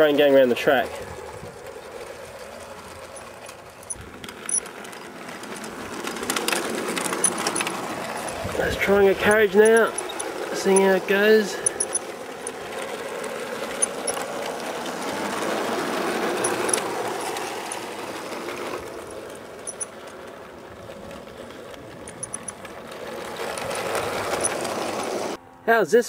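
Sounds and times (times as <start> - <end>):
model train motor whirring: 0.0 - 25.4.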